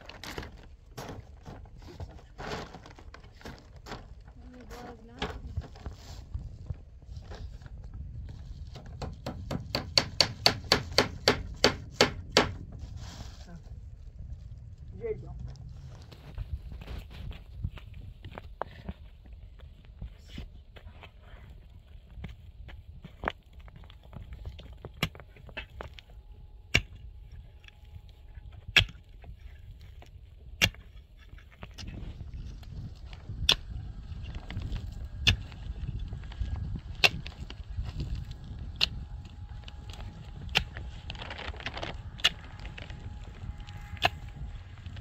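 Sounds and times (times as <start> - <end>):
wind rumble on microphone: 0.0 - 45.0
hammer striking nails: 9.0 - 12.6
hand pick striking stony soil: 26.7 - 27.0, 30.6 - 32.0, 34.6 - 35.8, 37.0 - 37.4.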